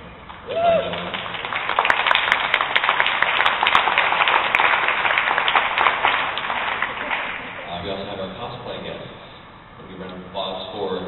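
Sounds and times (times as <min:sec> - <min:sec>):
audience applauding: 0:00.3 - 0:07.7.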